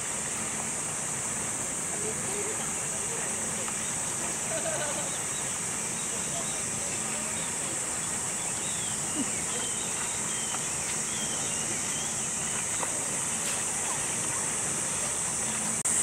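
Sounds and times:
steady rain hiss: 0.0s - 16.0s.

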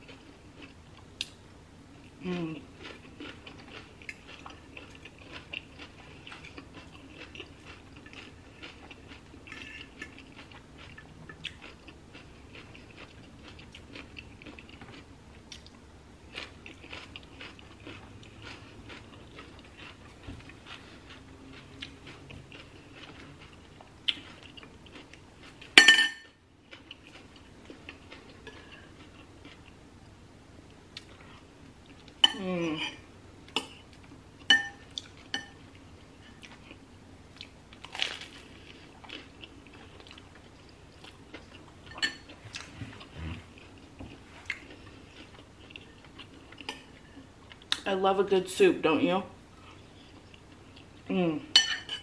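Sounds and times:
chewing and crunching cabbage: 2.2s - 29.8s, 35.9s - 47.9s.

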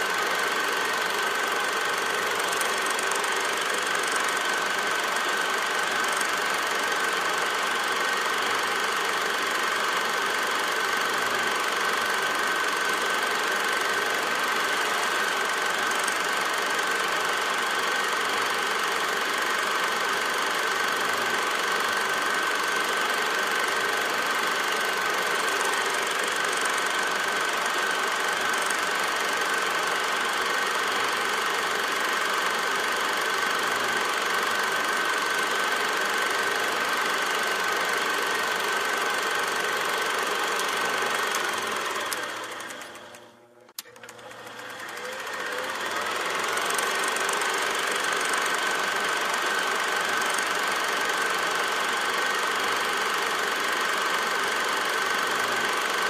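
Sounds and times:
film projector clatter and whine: 0.0s - 56.0s
click: 42.1s - 44.4s.

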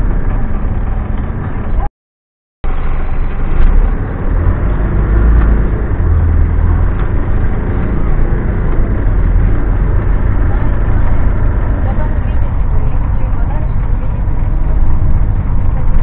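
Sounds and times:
bus engine and road rumble: 0.0s - 1.9s, 2.6s - 16.0s.

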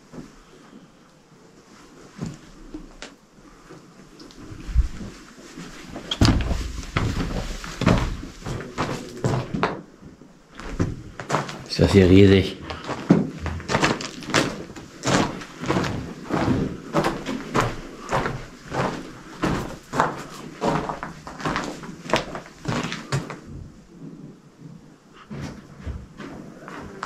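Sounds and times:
footsteps on loose stone rubble: 4.6s - 9.8s, 10.5s - 23.8s.

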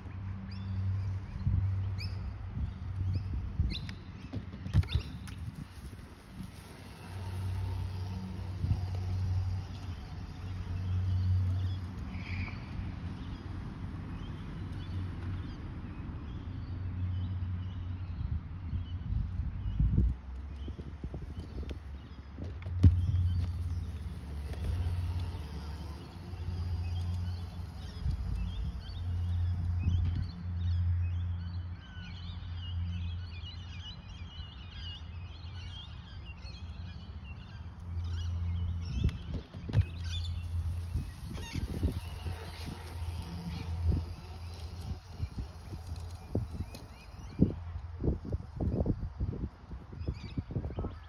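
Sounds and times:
wind on microphone: 1.1s - 12.2s, 18.1s - 30.8s, 38.1s - 51.0s
small birds chirping: 16.3s - 49.2s.

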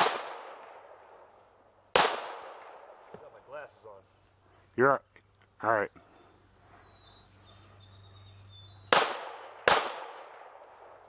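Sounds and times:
pistol shots with echo: 0.0s - 0.9s, 1.9s - 3.0s, 8.9s - 10.9s.

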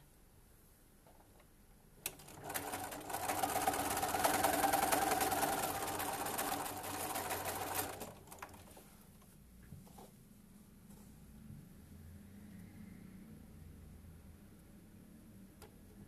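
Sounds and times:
sewing machine running: 2.0s - 8.7s.

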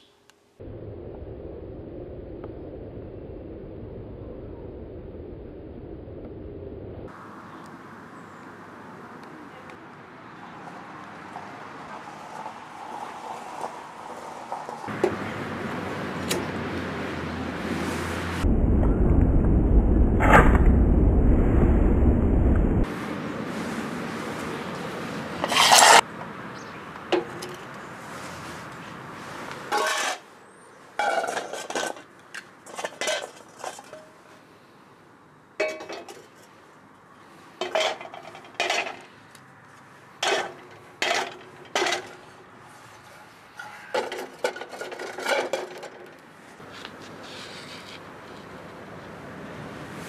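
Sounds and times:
metal clattering and clinking: 37.6s - 39.1s, 40.2s - 42.2s, 43.6s - 46.2s.

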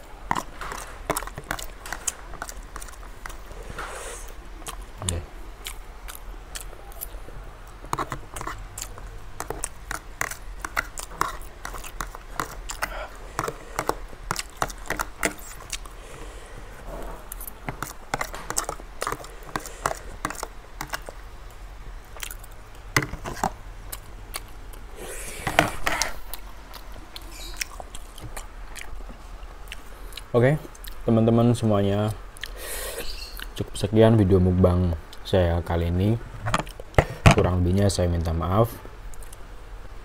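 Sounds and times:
chewing and mouth noises: 0.0s - 16.2s, 17.3s - 21.2s, 22.0s - 31.0s, 32.3s - 33.6s.

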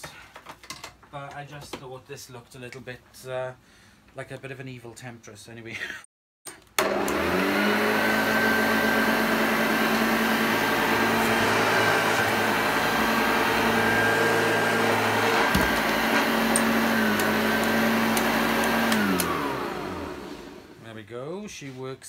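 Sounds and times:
vacuum cleaner motor humming: 6.8s - 20.8s.

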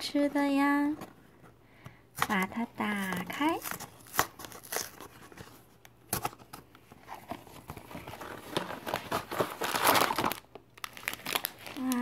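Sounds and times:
cardboard box tearing: 3.5s - 5.6s, 7.1s - 10.4s.

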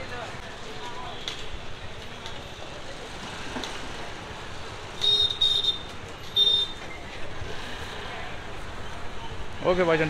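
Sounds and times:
busy market street noise: 0.0s - 10.0s
vehicle horn honking: 5.0s - 6.8s.

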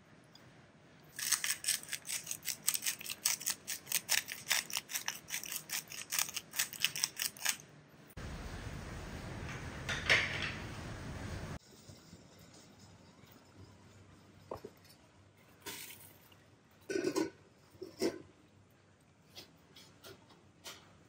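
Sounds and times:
salt grinder grinding: 1.2s - 7.6s
steady hiss: 8.1s - 13.4s.

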